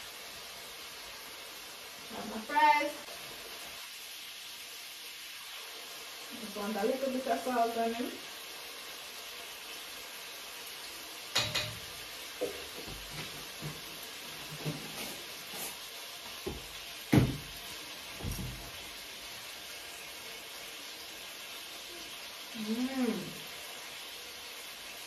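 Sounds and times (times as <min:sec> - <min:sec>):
shrimp sizzling in a pot: 0:00.0 - 0:25.0
pots and utensils knocking: 0:11.3 - 0:13.8.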